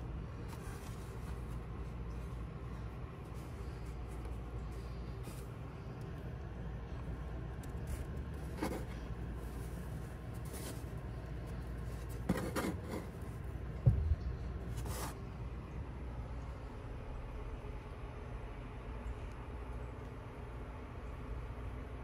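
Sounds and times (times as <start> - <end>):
steady low hum: 0.0 - 22.0
scratchy rustles: 7.7 - 13.4
dull bump: 13.8 - 14.4.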